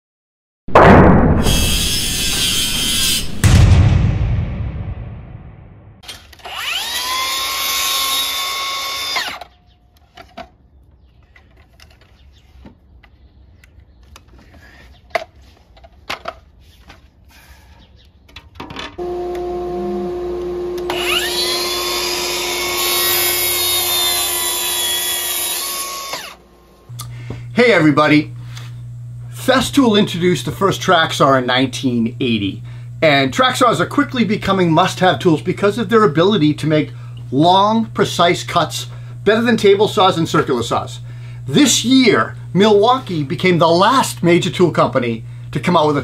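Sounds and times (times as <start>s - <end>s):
track saw motor whining: 1.5s - 3.3s, 6.0s - 9.6s, 19.0s - 31.3s
steady low hum: 19.0s - 46.0s.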